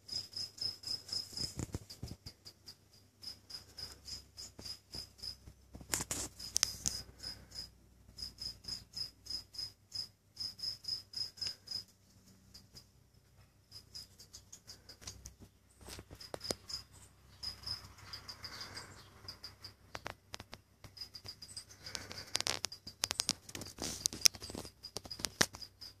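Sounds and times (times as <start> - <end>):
cricket chirping: 0.0 - 26.0
clicks and rustling: 0.6 - 2.8, 3.8 - 7.2, 19.6 - 26.0.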